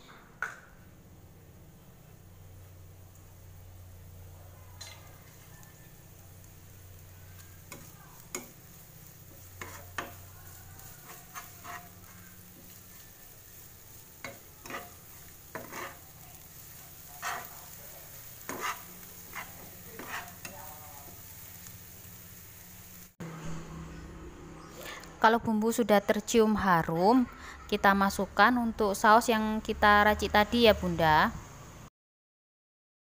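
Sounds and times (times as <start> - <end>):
aromatics sizzling in hot oil: 1.0 - 23.2
spatula scraping and tapping pan: 4.8 - 5.8, 7.4 - 21.3.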